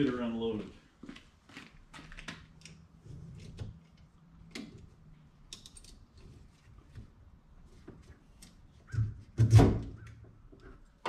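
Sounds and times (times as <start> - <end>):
strap buckles clicking and rattling: 5.5 - 6.3.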